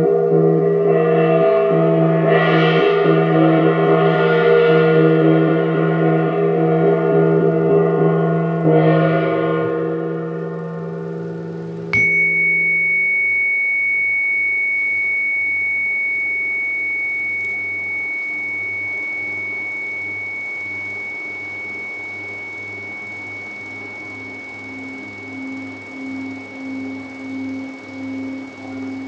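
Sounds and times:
high ringing tone from struck instrument: 0.0 - 29.0
singing bowl humming: 0.0 - 29.0.

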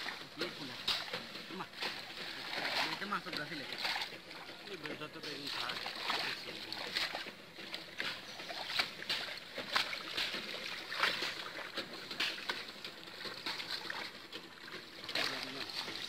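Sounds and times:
pond water splashing: 0.0 - 16.0.

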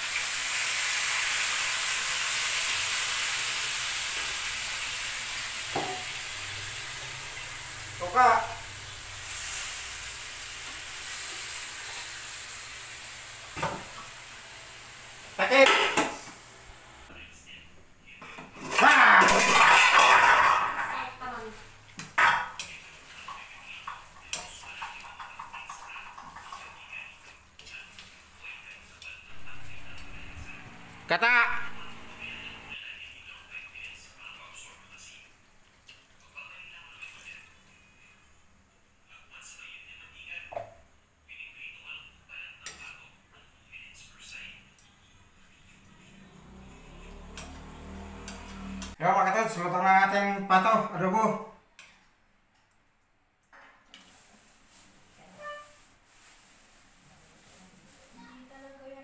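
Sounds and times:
meat sizzling in a wok: 0.0 - 17.0
metal spatula scraping a wok: 55.2 - 55.9.

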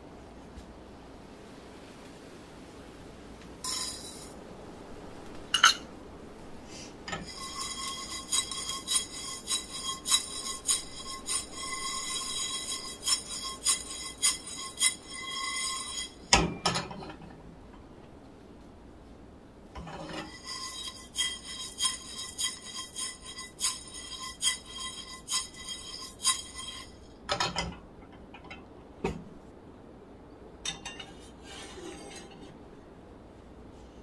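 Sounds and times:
seeds rattling in frying pan: 3.6 - 4.4.

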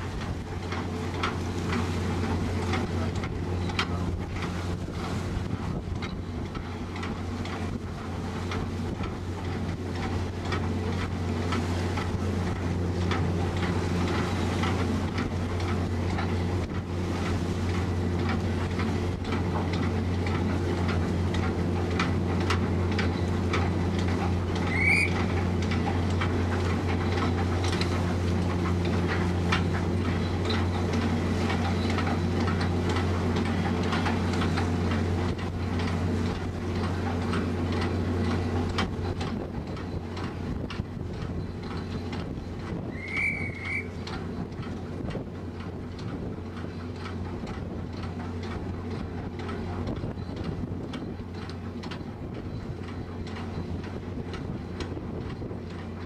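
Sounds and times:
ferry diesel engines droning: 0.0 - 56.0
short high rising squeak: 24.7 - 25.2, 42.9 - 44.0
wind on microphone: 38.8 - 45.4.

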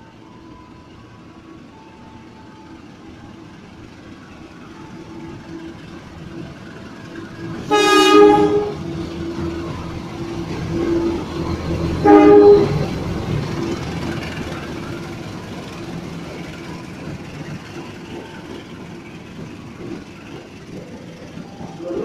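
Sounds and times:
diesel locomotive engine: 0.0 - 22.0
freight wagons rumbling on rails: 1.1 - 22.0
train horn blast: 7.6 - 8.9, 12.0 - 12.9.

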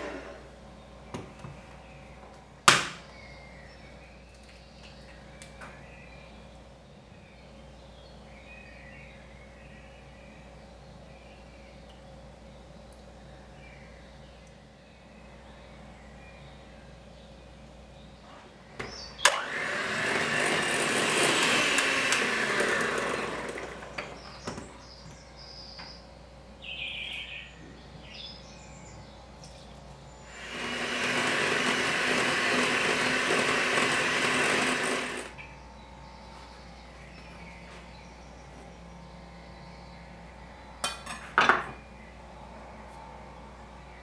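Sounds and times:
electric hand mixer beating: 0.0 - 0.4, 19.3 - 24.2, 30.3 - 35.4.

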